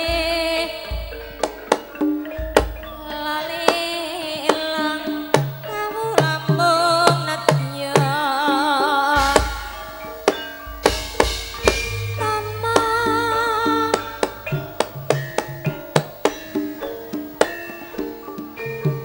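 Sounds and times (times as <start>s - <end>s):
woman singing with vibrato: 0.0s - 1.7s, 3.0s - 9.9s, 11.9s - 15.1s
hand drum strokes: 8.8s - 19.0s
low bass notes: 10.8s - 15.8s.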